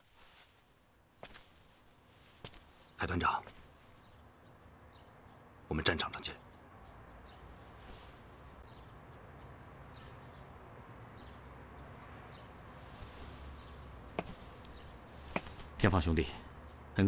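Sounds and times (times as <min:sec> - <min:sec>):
small bird chirping: 0:11.2 - 0:15.6.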